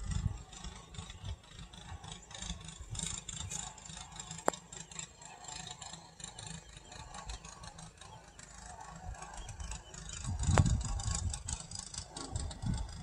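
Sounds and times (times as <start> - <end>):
wind buffeting microphone: 0.0 - 3.6, 9.0 - 13.0.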